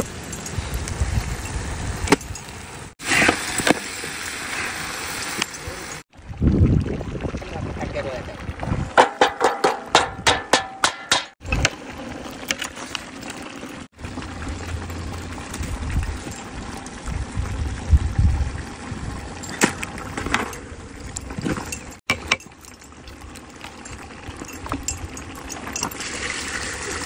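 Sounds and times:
outdoor hiss: 0:00.7 - 0:06.0
ladle clinking on metal pot: 0:09.0 - 0:11.4.

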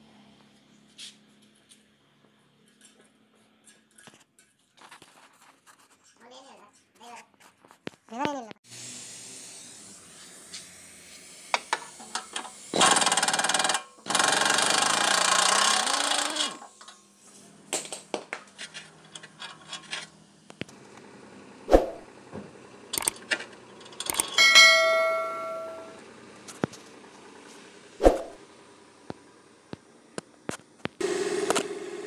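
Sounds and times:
impact wrench bursts: 0:09.3 - 0:16.8
metal clicks: 0:23.0 - 0:24.5
metal ringing: 0:24.3 - 0:26.0.

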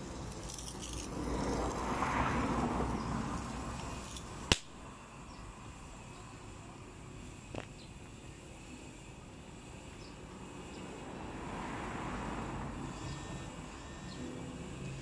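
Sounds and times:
distant vehicle passing: 0:00.0 - 0:04.6, 0:10.6 - 0:15.0
faint outdoor background noise: 0:00.0 - 0:15.0.

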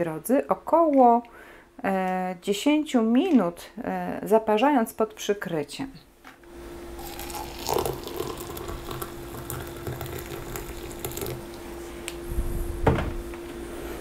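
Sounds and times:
water pouring into glass mug: 0:07.0 - 0:11.5.

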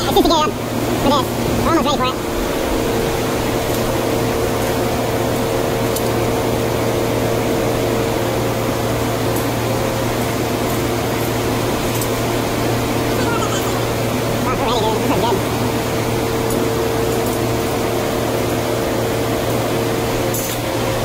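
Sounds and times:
gas burners and blower fans: 0:00.0 - 0:21.0.

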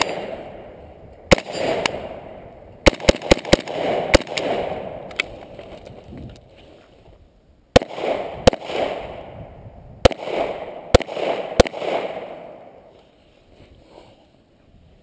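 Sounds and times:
rifle shots: 0:00.0 - 0:05.5, 0:07.7 - 0:12.9
rolling echo of gunshots: 0:00.0 - 0:05.5, 0:07.7 - 0:12.9.

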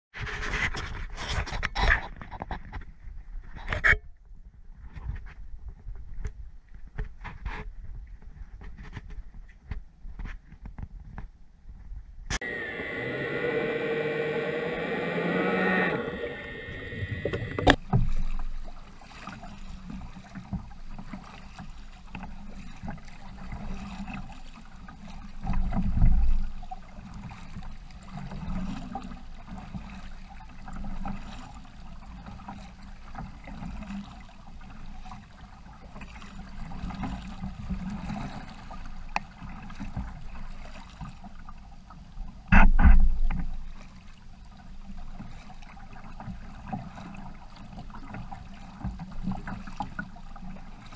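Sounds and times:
water lapping along hull: 0:00.2 - 0:50.9
paddle dipping through water: 0:12.4 - 0:50.9
sharp thump: 0:42.5 - 0:43.2.

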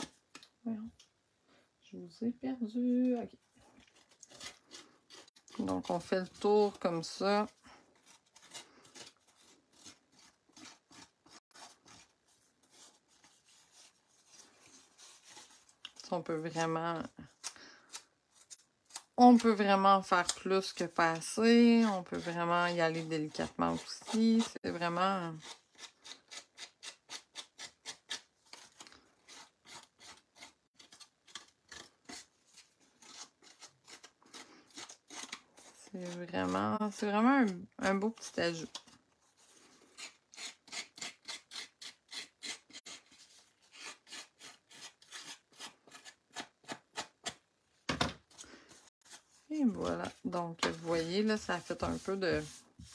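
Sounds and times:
scissors scraping paper edge: 0:03.9 - 0:12.1, 0:20.2 - 0:36.6, 0:39.9 - 0:47.4.

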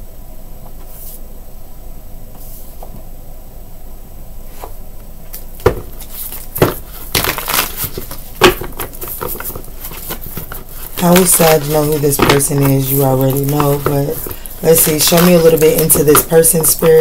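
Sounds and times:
cards rustling: 0:05.3 - 0:17.0
card boxes clacking together: 0:05.6 - 0:17.0.

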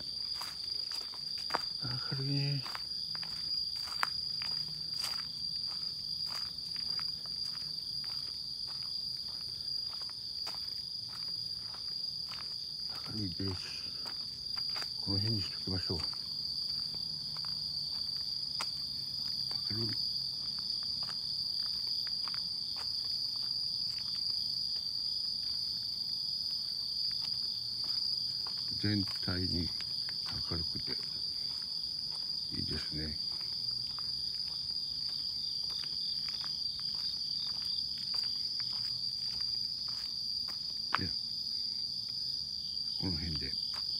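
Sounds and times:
footsteps on leaves: 0:00.0 - 0:02.0, 0:02.6 - 0:15.1, 0:30.0 - 0:40.6
insects trilling: 0:00.0 - 0:43.9.

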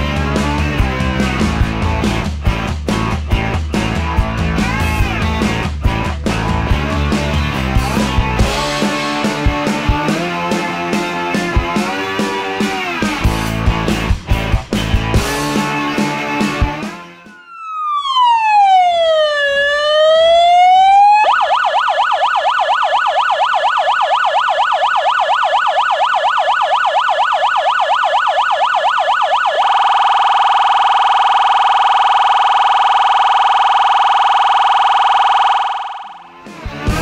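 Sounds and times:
emergency vehicle siren: 0:08.5 - 0:13.3, 0:15.5 - 0:37.0.

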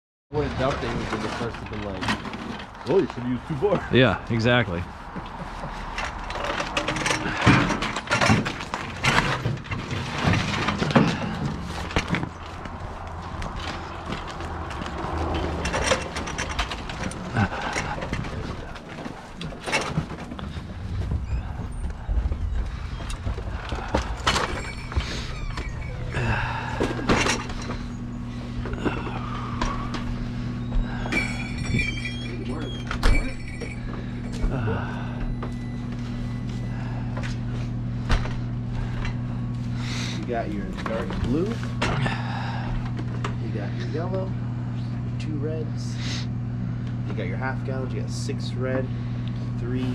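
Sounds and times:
low engine hum: 0:02.6 - 0:49.9
crates knocking and clattering: 0:05.2 - 0:25.4
bright ringing clatter: 0:30.6 - 0:36.6.

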